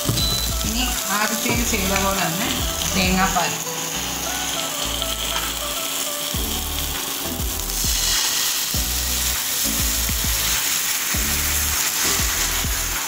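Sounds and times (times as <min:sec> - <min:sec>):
music with bass beat: 0:00.0 - 0:01.0, 0:01.6 - 0:03.3, 0:06.4 - 0:08.2, 0:08.8 - 0:10.6, 0:11.2 - 0:13.0
fish frying in oil: 0:00.0 - 0:13.0.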